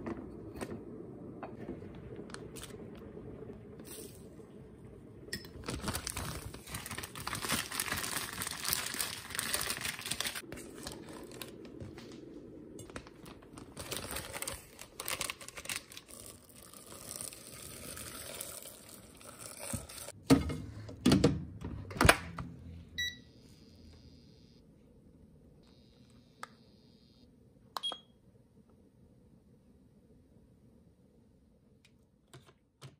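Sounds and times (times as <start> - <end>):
plastic bag crinkling: 5.6 - 11.8, 12.9 - 17.7.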